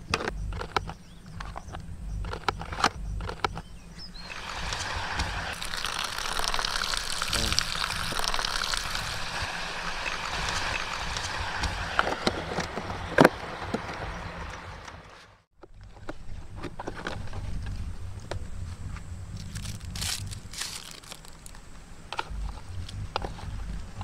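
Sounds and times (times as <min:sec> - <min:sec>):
water pouring into plastic tray: 0:04.3 - 0:12.4.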